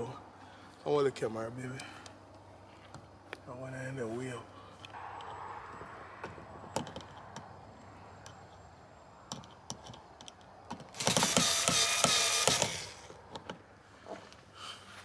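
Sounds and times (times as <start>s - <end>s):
power drill whirring: 10.9s - 13.2s.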